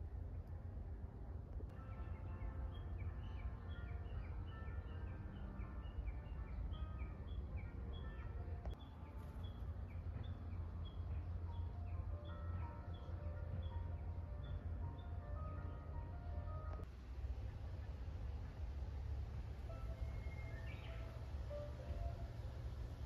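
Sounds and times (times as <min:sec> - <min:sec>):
steady low rumble: 0:00.0 - 0:23.0
bird chirping two-note phrase: 0:19.7 - 0:22.2.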